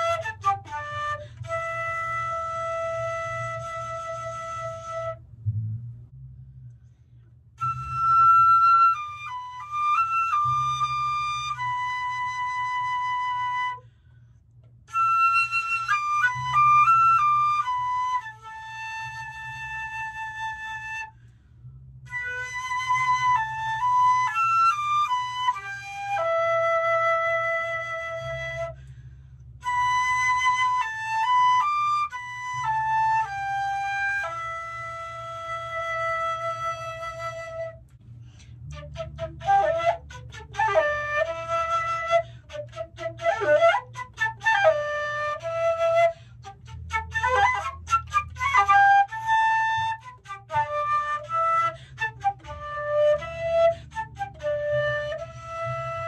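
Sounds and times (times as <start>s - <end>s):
solo flute melody: 0.0s - 5.8s, 7.5s - 56.0s.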